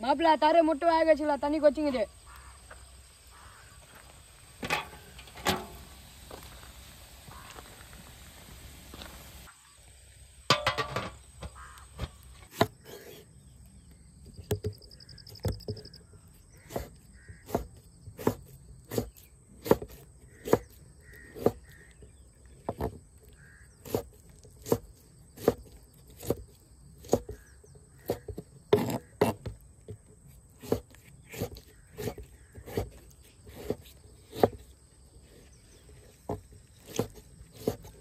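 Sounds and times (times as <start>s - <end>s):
knife slicing on wooden board: 16.6s - 20.8s, 36.8s - 38.0s.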